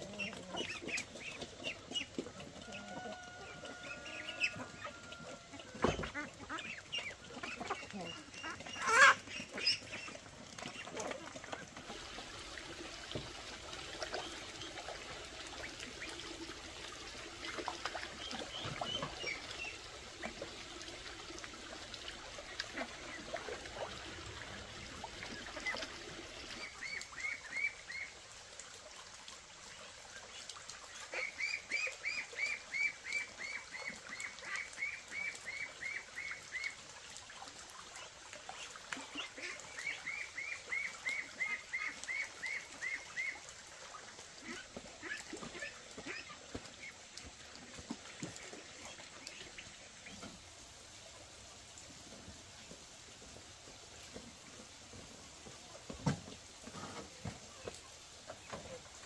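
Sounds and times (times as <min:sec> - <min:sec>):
ducks calling: 0:00.0 - 0:12.1
ducks shuffling: 0:00.0 - 0:27.7.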